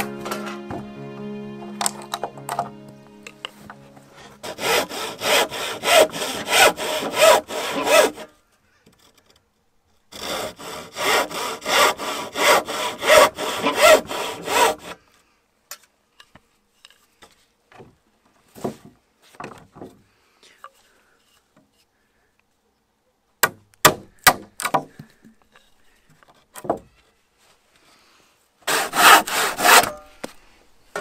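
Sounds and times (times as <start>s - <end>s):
hand saw cutting wood: 4.2s - 8.3s, 10.1s - 15.0s, 28.6s - 30.4s.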